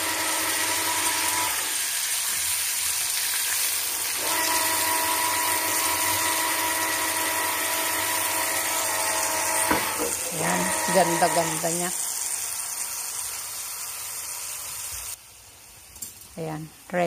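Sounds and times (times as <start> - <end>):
electrical whine from appliance: 0.0 - 2.1, 3.7 - 15.1.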